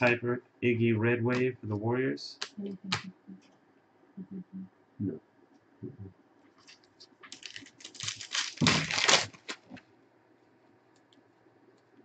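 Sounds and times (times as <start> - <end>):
foil wrapper crinkling and tearing: 6.6 - 9.8.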